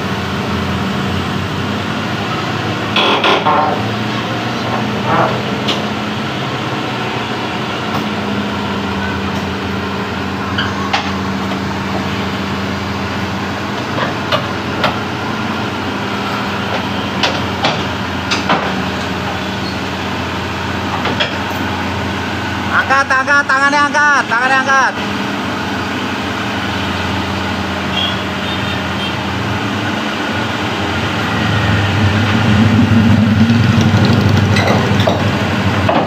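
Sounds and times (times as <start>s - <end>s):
excavator diesel engine running: 0.0s - 36.0s
sharp metal clanks and knocks: 34.1s - 36.0s.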